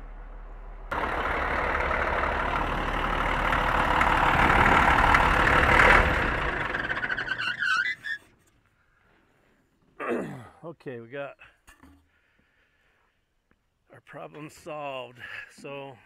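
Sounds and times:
loud diesel engine running: 0.9 - 7.6.

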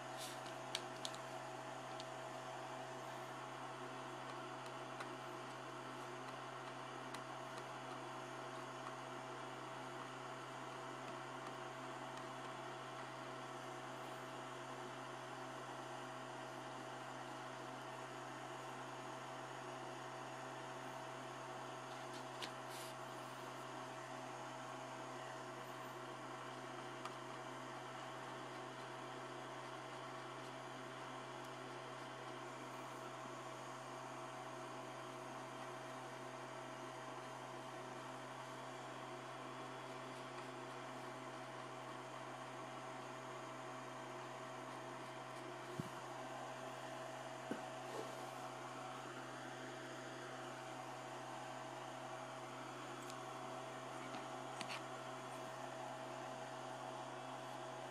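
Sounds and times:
steady hiss: 0.0 - 1.2
low electrical hum: 0.0 - 57.9.

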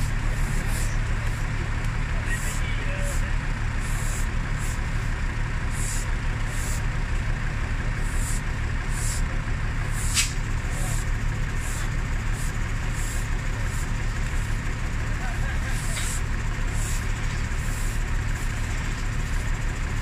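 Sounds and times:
broom sweeping road: 0.0 - 20.0
crane engine running: 0.0 - 20.0.

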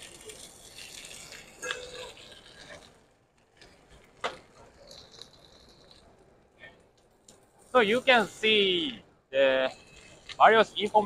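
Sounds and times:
food sizzling in rotating wok: 0.0 - 3.1.

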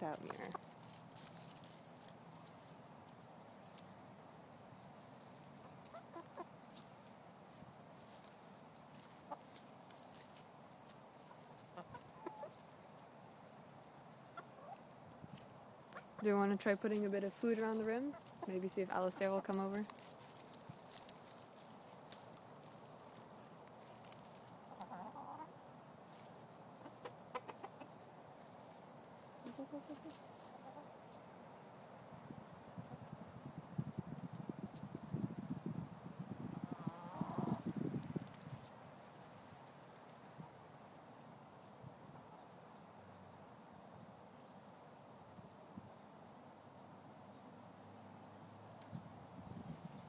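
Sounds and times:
chickens clucking softly: 4.8 - 6.9, 7.5 - 10.4, 11.0 - 13.1, 13.9 - 16.2, 20.8 - 31.3, 36.5 - 38.6, 39.3 - 43.7.

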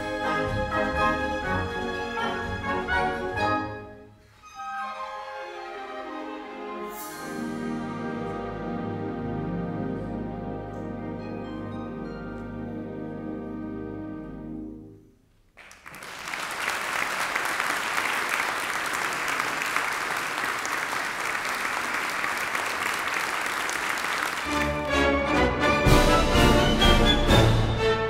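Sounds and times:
audience applause: 15.6 - 25.4.

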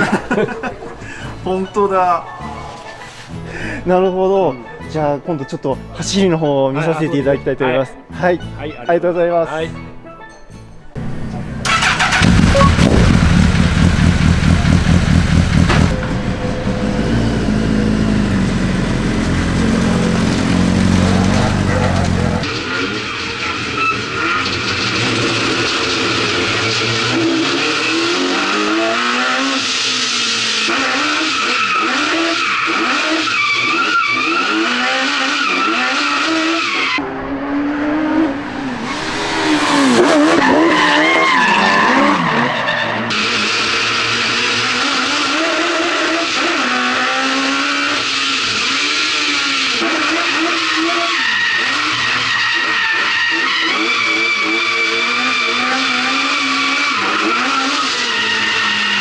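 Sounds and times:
motorcycle engine revving: 11.0 - 22.6, 33.8 - 41.2, 43.0 - 51.9
tyres squealing: 18.6 - 22.4, 38.6 - 43.7, 49.0 - 59.0.

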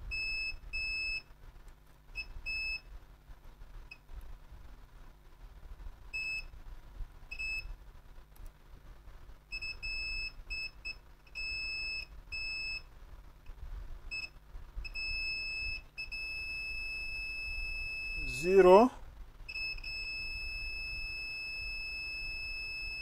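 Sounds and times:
multimeter continuity beeping: 0.1 - 1.3, 2.1 - 2.9, 6.1 - 6.5, 7.3 - 7.8, 9.5 - 12.9, 14.1 - 18.9, 19.5 - 23.0.

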